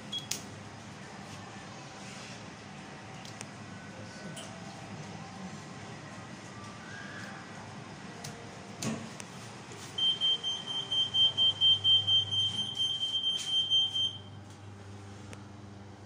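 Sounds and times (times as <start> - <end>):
lift door warning beeping: 10.0 - 14.3.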